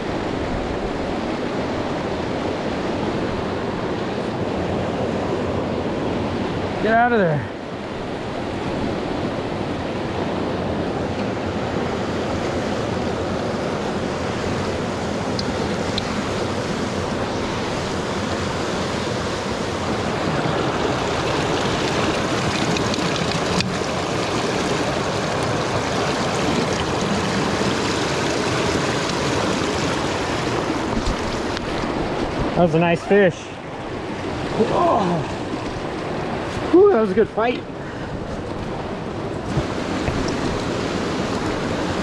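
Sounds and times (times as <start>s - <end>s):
river rapids rushing over boulders: 0.0s - 42.0s.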